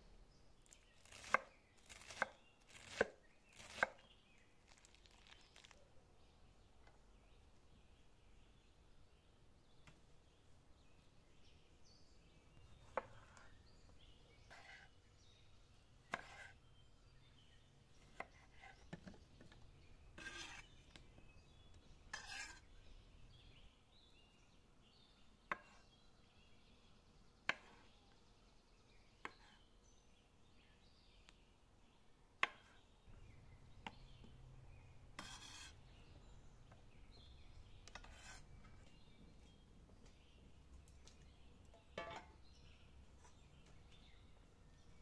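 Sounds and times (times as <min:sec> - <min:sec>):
rustling vegetables: 0:00.6 - 0:05.9
knife slicing pickles: 0:00.7 - 0:04.1, 0:20.2 - 0:20.8, 0:35.2 - 0:35.8.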